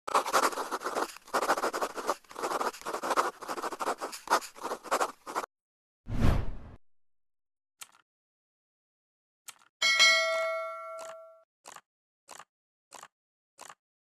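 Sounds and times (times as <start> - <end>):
pen scratching handwriting: 0.1 - 5.5.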